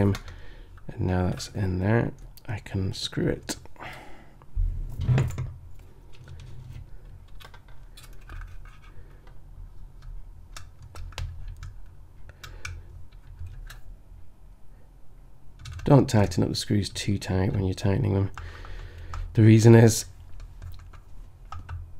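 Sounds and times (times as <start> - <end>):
plastic parts clicking and tapping: 0.0 - 1.5, 6.1 - 13.9, 15.6 - 16.4, 17.5 - 19.4, 20.2 - 21.9.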